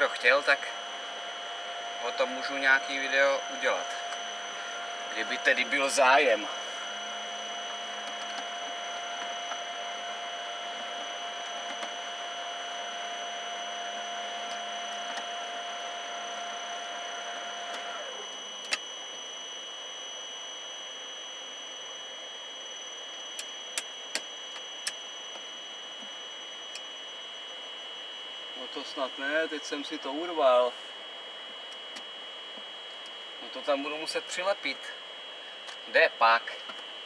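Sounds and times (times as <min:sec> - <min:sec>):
dosing machinery running: 0:00.0 - 0:10.1
sharp clicks: 0:23.4 - 0:25.0.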